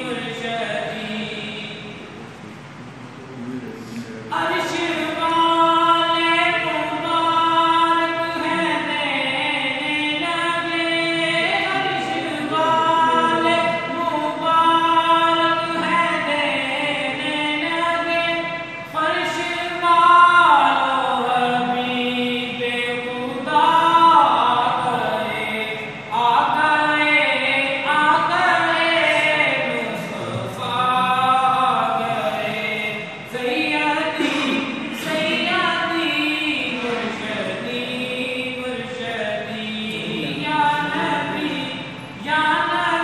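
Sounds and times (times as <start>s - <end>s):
man singing unaccompanied: 4.2s - 18.2s, 35.1s - 43.0s.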